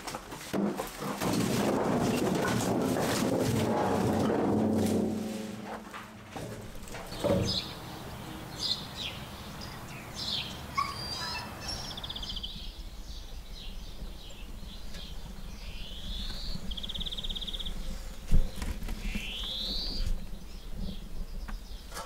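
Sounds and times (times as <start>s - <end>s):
songbirds chirping: 0.1s - 22.0s
whistled bird calls: 7.1s - 12.7s, 19.0s - 20.2s
bird trill: 7.1s - 12.8s.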